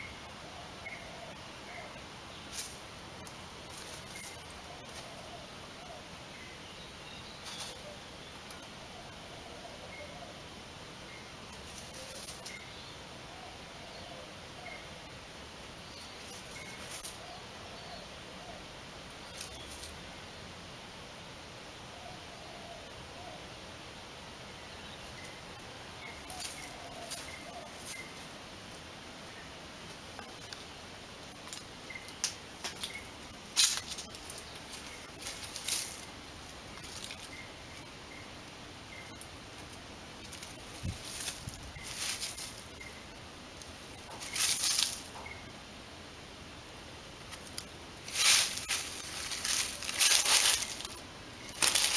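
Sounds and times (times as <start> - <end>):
rabbit scratching in soil: 2.5 - 5.3, 11.5 - 12.6, 16.0 - 17.2, 26.1 - 28.3, 32.2 - 37.9, 39.6 - 43.0, 43.6 - 45.3, 47.3 - 51.9.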